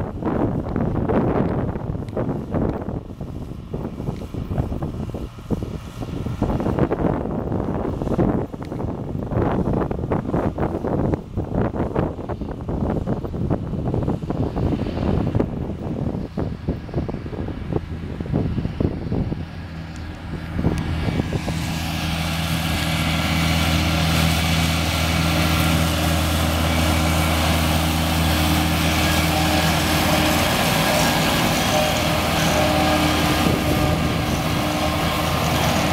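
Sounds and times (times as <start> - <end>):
tractor diesel engine running: 0.0 - 35.9
whir of disc mowers: 0.0 - 35.9
wind buffeting microphone: 0.0 - 35.9.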